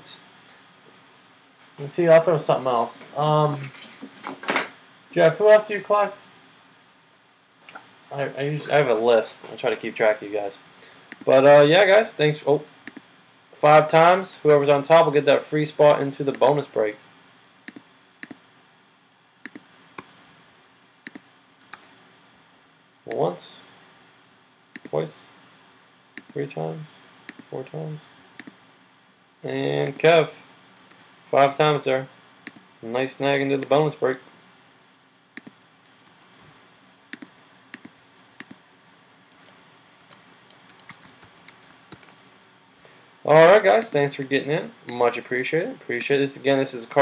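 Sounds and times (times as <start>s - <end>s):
room hiss: 0.0s - 47.0s
mouse and keyboard clicks: 21.1s - 21.9s, 37.1s - 42.1s.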